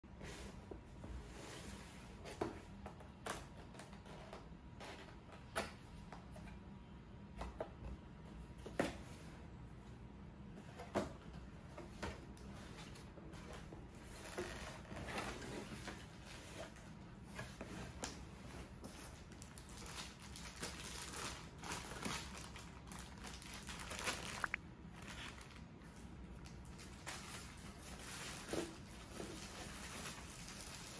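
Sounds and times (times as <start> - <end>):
plastic bag rustling: 19.0 - 30.9.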